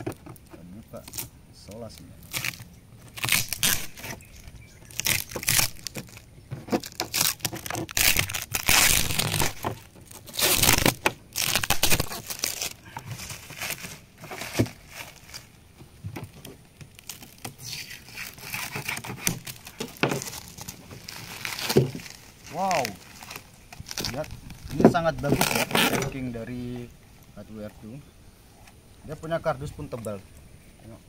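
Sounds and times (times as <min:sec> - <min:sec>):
packing tape tearing: 0:01.9 - 0:04.3, 0:04.9 - 0:15.5, 0:16.4 - 0:26.2
cardboard packaging crunching: 0:02.2 - 0:15.6, 0:16.3 - 0:26.3.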